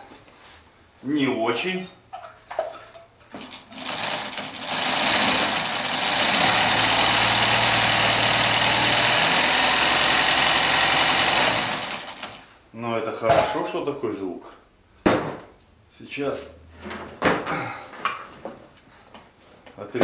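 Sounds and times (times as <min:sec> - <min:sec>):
sewing machine running: 0:03.4 - 0:12.4.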